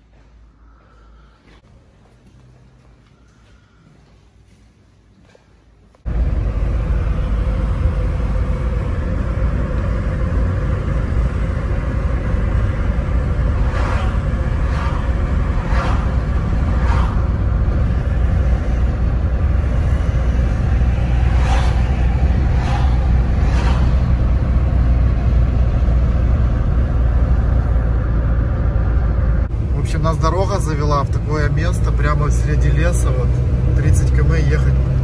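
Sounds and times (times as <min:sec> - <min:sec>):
car engine and tyre rumble: 0:05.2 - 0:35.0
brief swishes: 0:13.6 - 0:17.4, 0:21.3 - 0:24.2.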